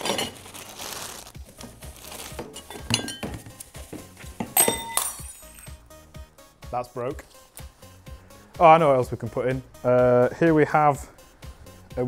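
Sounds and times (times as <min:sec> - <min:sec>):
tissue and plastic crinkling: 0:00.0 - 0:02.6
china and glassware chinking: 0:02.5 - 0:03.4, 0:04.4 - 0:05.8.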